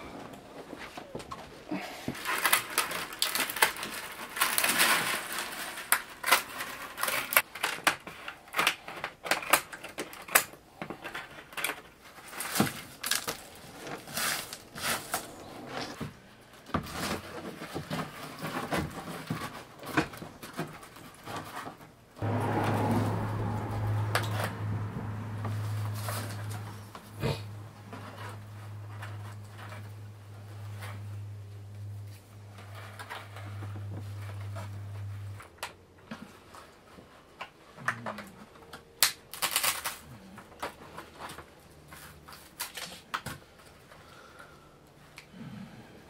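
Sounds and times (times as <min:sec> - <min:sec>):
bamboo strips clicking and rustling: 0:01.0 - 0:21.9, 0:31.8 - 0:45.3.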